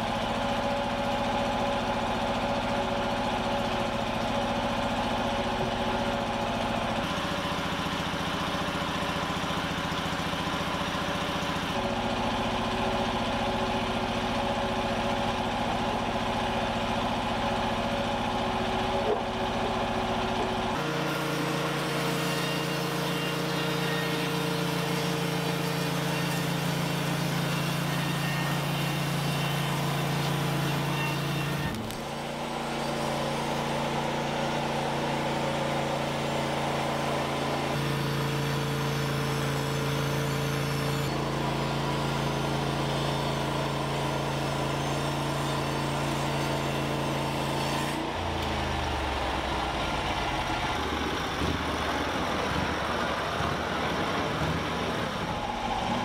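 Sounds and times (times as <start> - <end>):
sawmill gasoline engine running: 0.0 - 56.0.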